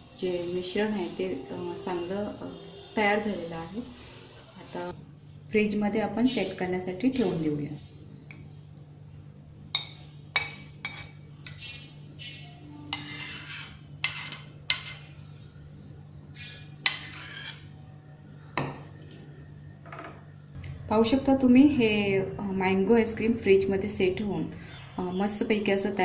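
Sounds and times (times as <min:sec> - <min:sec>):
spoon scraping metal pan: 0:00.3 - 0:04.7, 0:10.4 - 0:15.1, 0:16.4 - 0:17.8.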